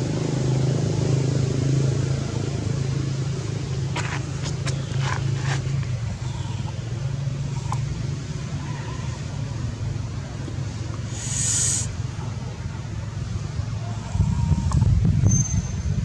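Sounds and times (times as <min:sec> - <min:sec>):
short sharp high sounds: 0:11.1 - 0:11.9.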